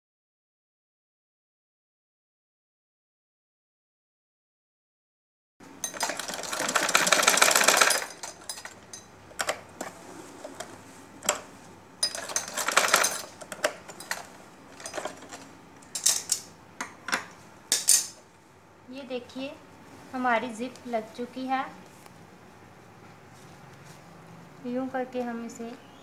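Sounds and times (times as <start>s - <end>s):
sewing machine stitching: 5.9s - 8.8s, 12.1s - 14.2s.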